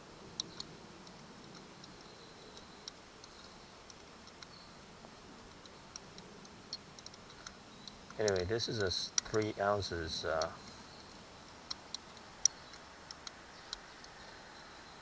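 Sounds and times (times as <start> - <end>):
light metal clicks of grease gun: 5.4 - 10.8.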